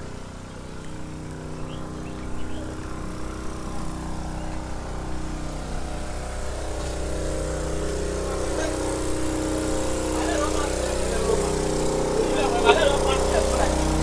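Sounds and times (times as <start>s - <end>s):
drilling rig engine humming: 0.0s - 14.0s.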